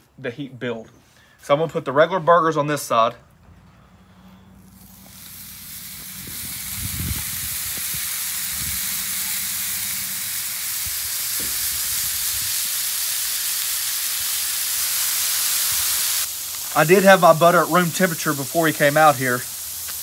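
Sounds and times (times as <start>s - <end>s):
burger patties sizzling on griddle: 4.6s - 20.0s.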